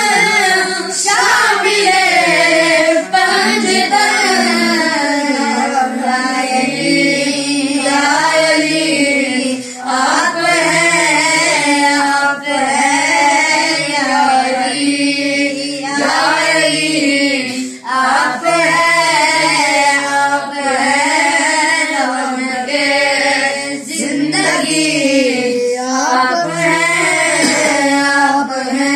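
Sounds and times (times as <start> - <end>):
high voice singing: 0.0 - 8.7, 24.0 - 28.9.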